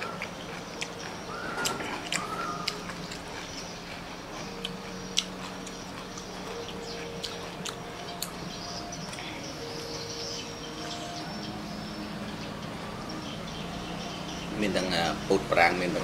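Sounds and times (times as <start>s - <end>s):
person chewing food: 0.0s - 10.5s.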